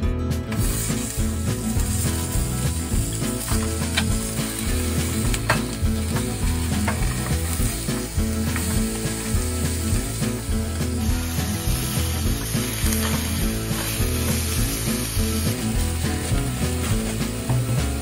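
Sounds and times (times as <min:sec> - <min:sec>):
beef sizzling in a frying pan: 0:00.5 - 0:18.0.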